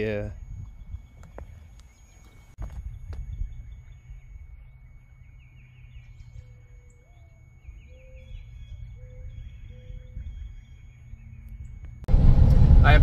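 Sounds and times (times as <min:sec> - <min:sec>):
birds chirping: 0:00.0 - 0:12.1
high-pitched whine: 0:00.0 - 0:13.0
low rumble: 0:11.1 - 0:13.0.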